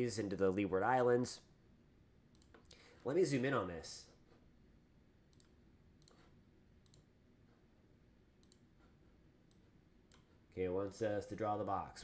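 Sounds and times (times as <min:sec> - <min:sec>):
faint computer mouse clicks: 0:02.3 - 0:02.8, 0:05.3 - 0:07.1, 0:08.4 - 0:08.7, 0:09.4 - 0:10.3.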